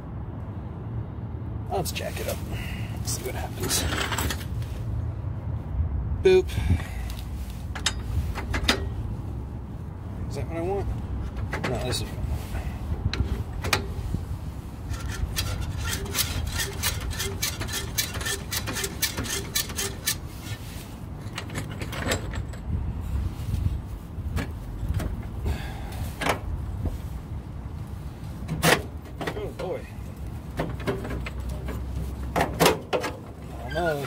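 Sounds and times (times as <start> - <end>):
metal clicks and clanks: 3.6 - 4.5, 7.7 - 9.0, 14.9 - 20.6, 21.2 - 22.7
steady low rumble: 20.0 - 28.5.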